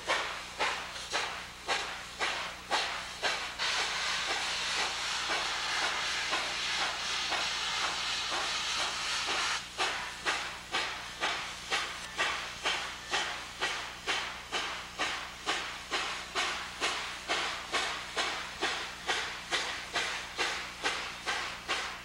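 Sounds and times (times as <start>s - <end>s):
steam hissing: 0.0s - 22.0s
steam locomotive exhaust chuffing: 0.0s - 22.0s.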